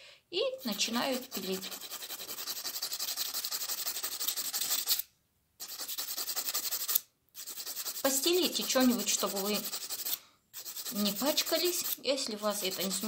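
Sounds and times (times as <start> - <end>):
nail file rasping on claw: 0.6 - 13.0.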